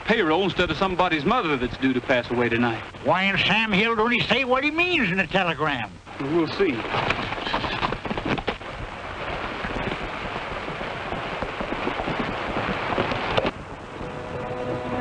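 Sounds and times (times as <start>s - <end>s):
horse hoofbeats on dirt: 6.8s - 13.6s.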